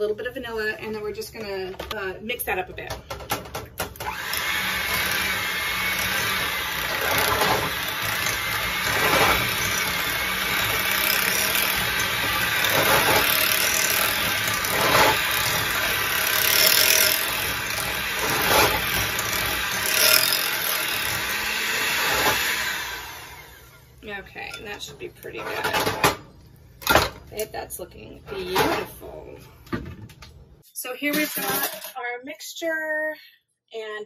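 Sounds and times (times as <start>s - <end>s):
electric hand mixer running: 3.9s - 24.0s.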